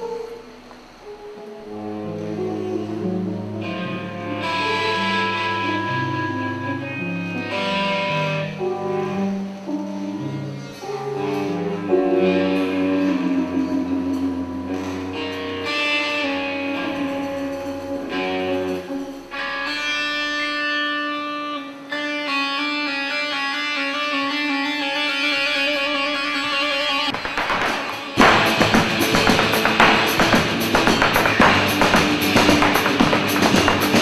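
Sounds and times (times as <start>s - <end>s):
slow electric guitar melody: 0.0s - 27.4s.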